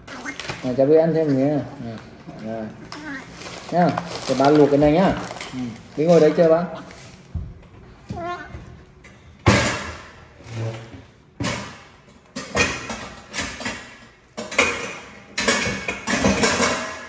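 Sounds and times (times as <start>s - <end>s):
metal pots clanking: 12.4s - 17.0s.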